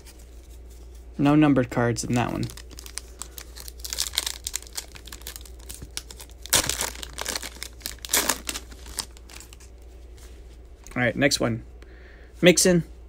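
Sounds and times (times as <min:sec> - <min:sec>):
foil wrapper crinkling and tearing: 0:02.1 - 0:09.7.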